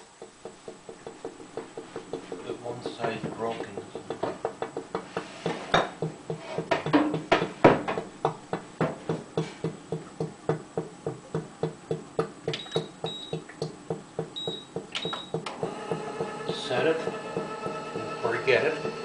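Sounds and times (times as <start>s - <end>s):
background music with steady beat: 9.7s - 19.0s.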